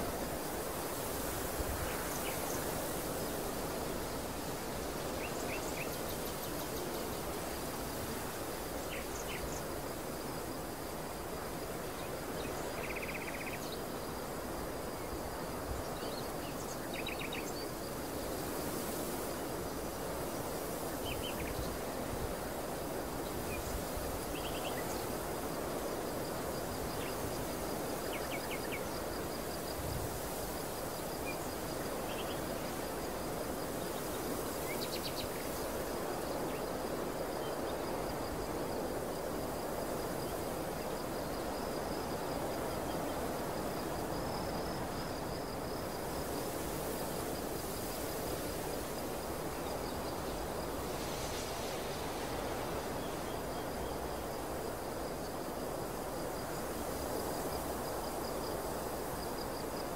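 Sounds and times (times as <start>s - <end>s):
insect trill: 0.0s - 59.9s.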